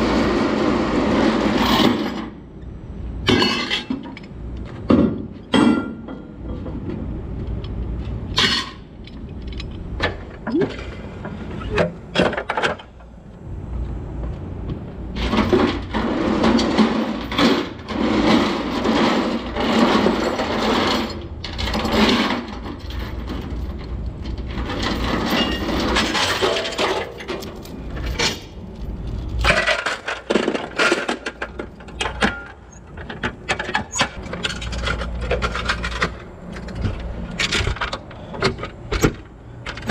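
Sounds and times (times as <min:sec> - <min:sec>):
chain rattling and scraping: 0:15.2 - 0:37.6.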